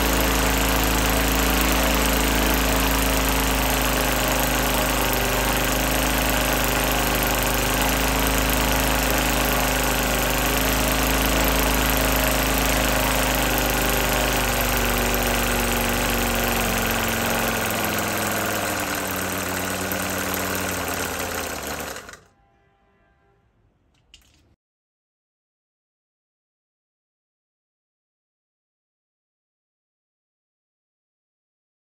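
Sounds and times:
model radial engine running: 0.0 - 22.3.

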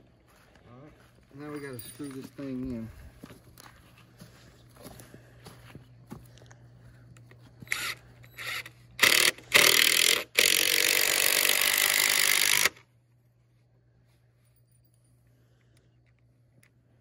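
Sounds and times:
cordless drill driving screw: 7.6 - 12.8.

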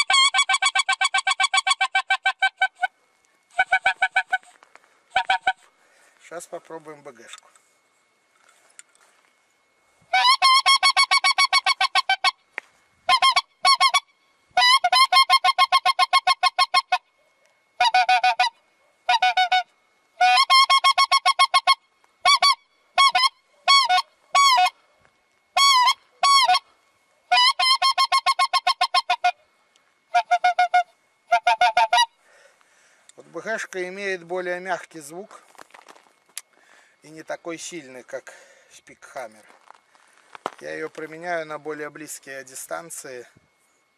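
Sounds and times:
goose call honks: 0.0 - 5.7, 10.1 - 12.4, 13.1 - 17.1, 17.8 - 24.8, 25.6 - 26.7, 27.3 - 29.4, 30.1 - 32.2.

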